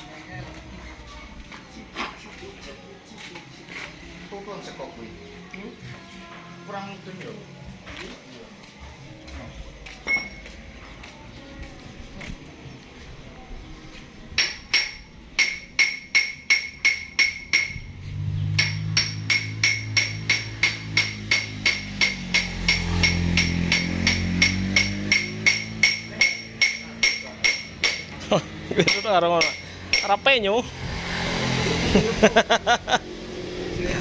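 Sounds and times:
hammer striking metal: 14.4 - 28.2, 28.8 - 30.3.

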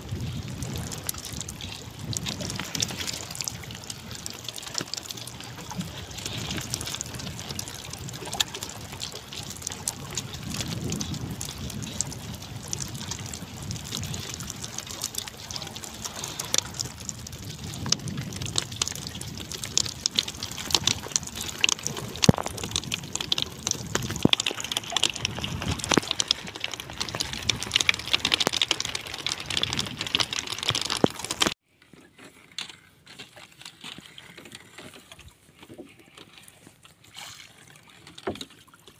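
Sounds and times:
water lapping against boat hull: 0.0 - 38.9.

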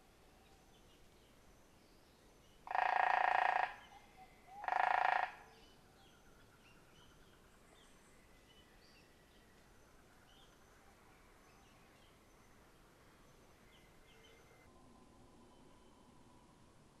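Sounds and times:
faint bird chirps: 0.2 - 16.6
woodpecker rattling: 2.7 - 3.8, 4.6 - 5.4.

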